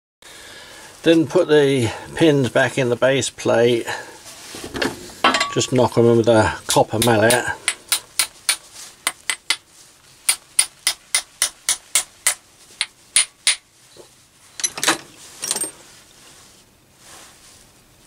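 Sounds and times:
mallet tapping metal pin: 7.0 - 9.6, 10.3 - 13.6
handling clatter: 13.9 - 15.9.

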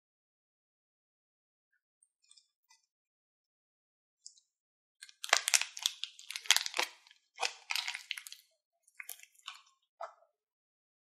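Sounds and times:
plastic bag crinkling and tearing: 5.0 - 8.4
crunchy slime crackling: 5.1 - 8.4.

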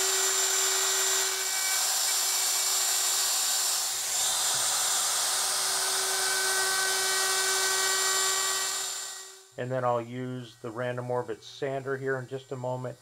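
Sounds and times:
router cutting wood: 0.0 - 9.6.

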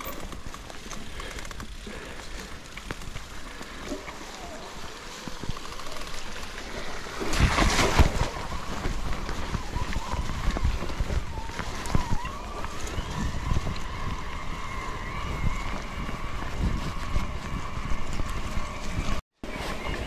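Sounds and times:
wind buffeting microphone: 7.2 - 20.0.

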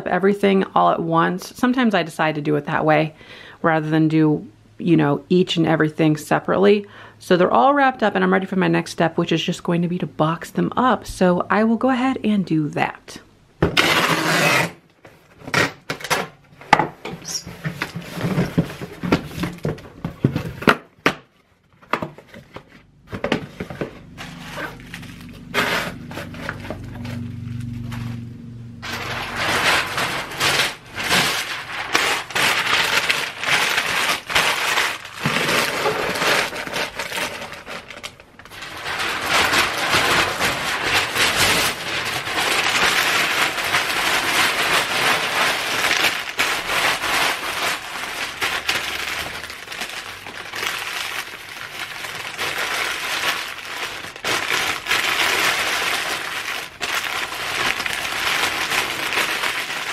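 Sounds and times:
packing paper crumpling: 23.2 - 59.9.

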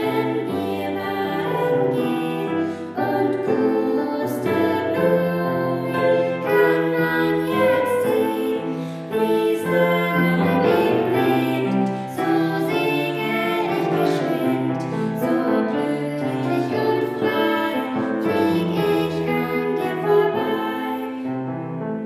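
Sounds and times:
woman and girl singing: 0.0 - 21.3
upright piano: 0.0 - 22.0.

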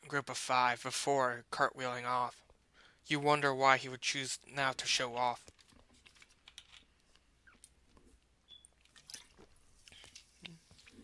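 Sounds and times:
mouth clicks and lip smacks: 5.5 - 11.0.

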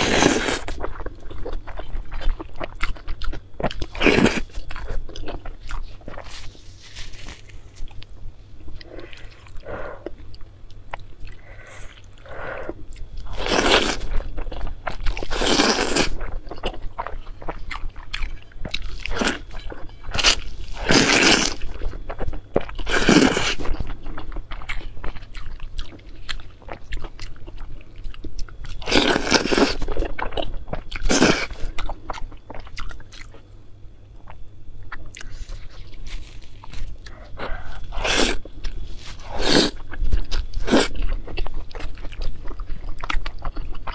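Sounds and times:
person chewing food: 0.0 - 33.5, 34.2 - 43.9.

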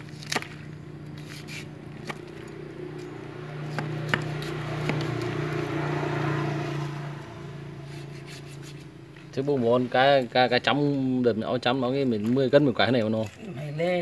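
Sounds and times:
cleaver chopping fish fins: 0.0 - 5.7
steady low hum: 0.0 - 10.0.

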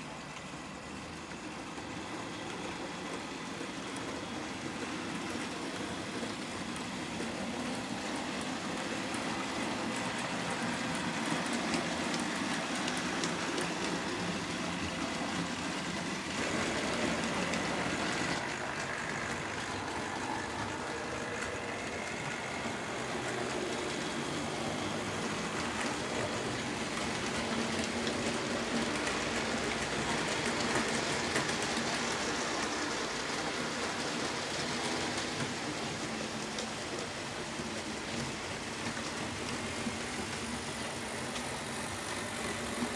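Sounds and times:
model train wheels rattling on track: 0.3 - 42.9.

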